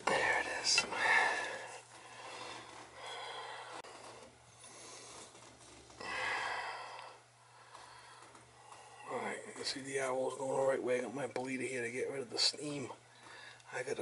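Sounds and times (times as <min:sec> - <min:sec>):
steady low hum: 0:00.0 - 0:14.0
breathing: 0:00.9 - 0:05.4, 0:06.0 - 0:09.1, 0:13.1 - 0:13.7.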